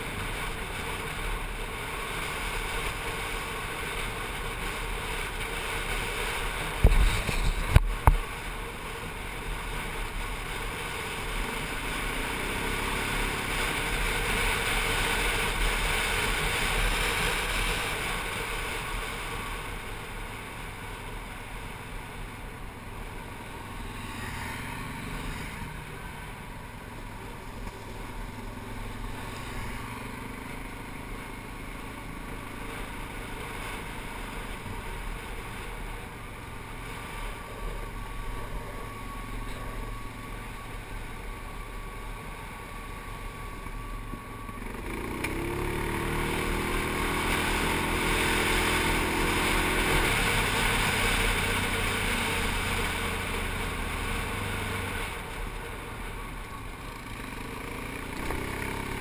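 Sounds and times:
atv engine running: 0.0s - 59.0s
wind on microphone: 6.8s - 8.2s.

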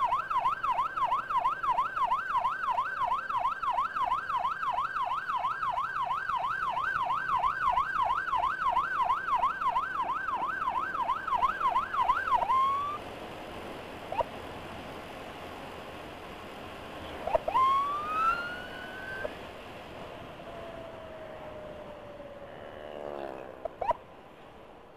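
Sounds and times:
emergency siren yelping: 0.0s - 13.0s, 17.2s - 19.3s, 23.7s - 24.0s
siren wail: 0.0s - 13.0s, 17.2s - 19.3s, 20.4s - 24.0s
wind and road rush: 0.0s - 24.9s.

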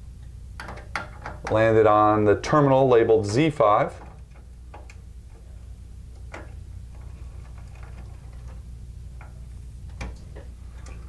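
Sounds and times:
small wire clicks: 0.2s - 1.7s, 4.0s - 11.0s.

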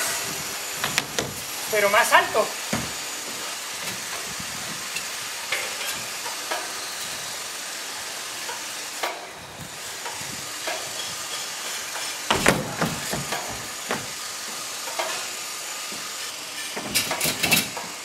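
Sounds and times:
steady hiss: 0.0s - 18.0s
skateboard thuds on wooden ramp: 0.8s - 1.4s, 12.3s - 14.1s.

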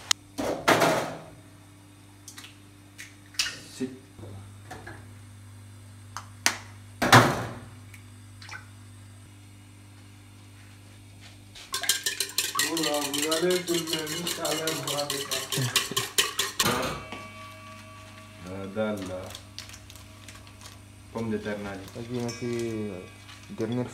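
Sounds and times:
eggs cracked against steel bowl: 11.7s - 16.9s
utensil clinking against bowl: 11.7s - 23.9s.

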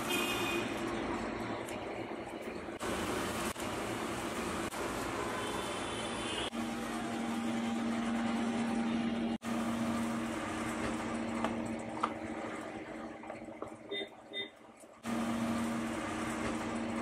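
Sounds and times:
electric machine hum: 6.5s - 13.7s.

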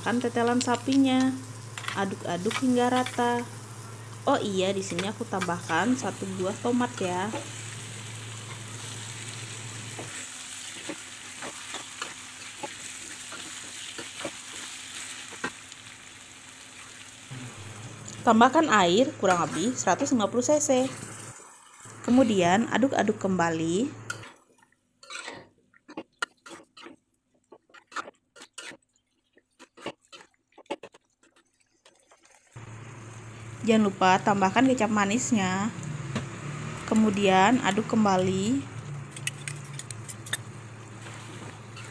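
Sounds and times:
food sizzling in a wok: 0.0s - 24.1s, 32.6s - 39.0s, 40.4s - 41.9s
spatula scraping a pan: 9.9s - 15.6s, 25.0s - 32.4s
metal spatula scraping wok: 25.0s - 25.4s, 39.1s - 41.9s.

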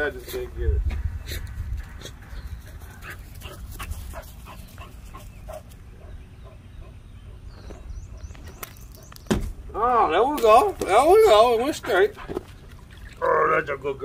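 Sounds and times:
wind rumble: 0.5s - 5.2s.

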